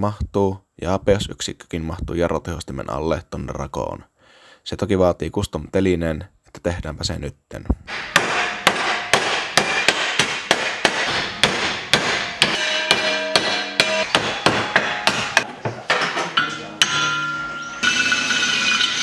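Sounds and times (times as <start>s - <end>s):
hammer beating sheet metal: 7.9s - 19.0s.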